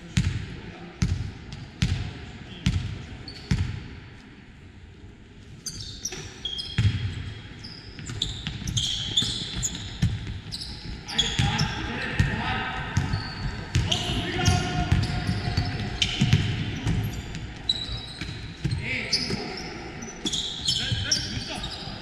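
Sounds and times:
sneakers squeaking on court: 2.6 - 3.8, 5.6 - 22.0
basketball bouncing: 13.0 - 19.5.

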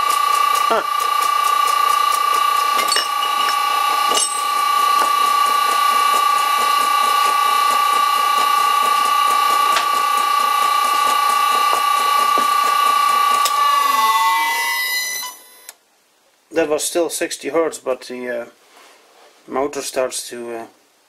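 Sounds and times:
drill cutting metal: 0.0 - 15.4
electric motor whining: 0.0 - 15.7.

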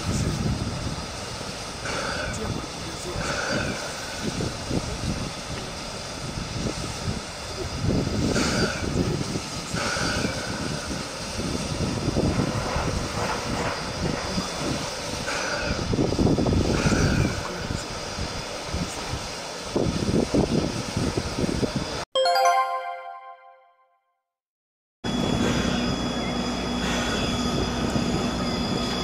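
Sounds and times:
steam locomotive hissing: 0.0 - 20.5.

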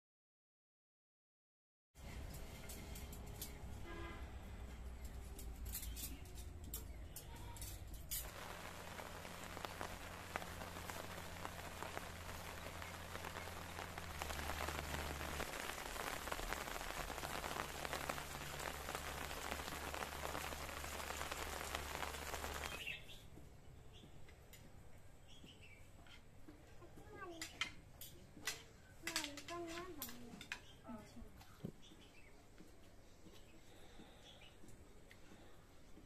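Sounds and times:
rain on leaves and ground: 7.6 - 23.1.

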